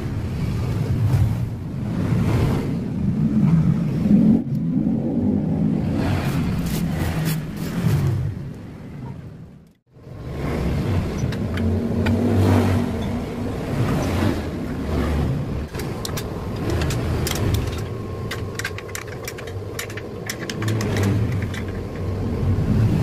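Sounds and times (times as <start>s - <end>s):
fluctuating low rumble: 0.0s - 23.0s
light metal clicks and knocks: 15.6s - 22.2s.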